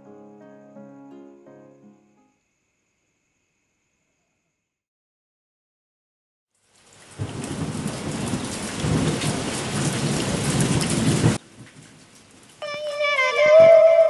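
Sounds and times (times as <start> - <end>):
heavy rain falling: 6.6 - 14.0
low rumble of thunder: 7.2 - 12.0.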